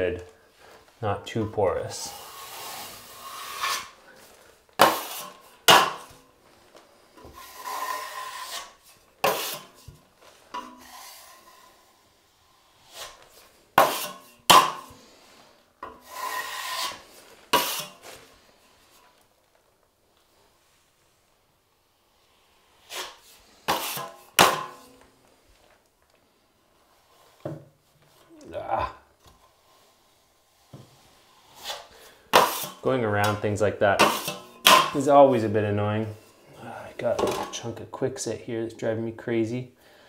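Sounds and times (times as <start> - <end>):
trowel scraping joint compound: 1.3 - 6.3, 7.1 - 19.2, 22.0 - 25.8, 29.2 - 37.7.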